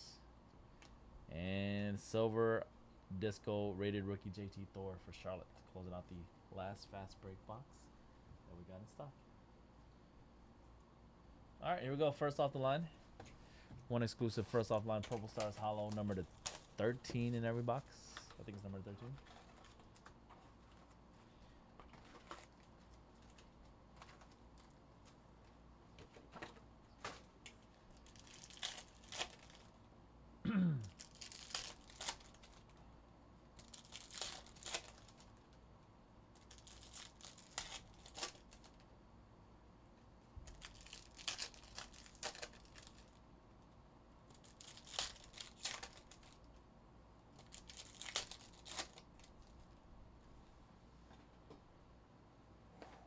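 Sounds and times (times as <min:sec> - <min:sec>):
foil wrappers tearing and crinkling: 0:14.6 - 0:17.6, 0:27.1 - 0:29.8, 0:30.9 - 0:32.8, 0:33.6 - 0:35.5, 0:36.4 - 0:38.8, 0:40.5 - 0:43.2, 0:44.3 - 0:46.5, 0:47.4 - 0:49.6.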